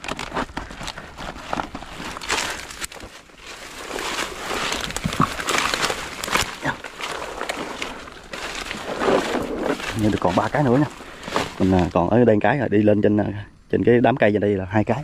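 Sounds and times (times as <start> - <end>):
footsteps crunching through dry leaves: 0.0 - 12.0.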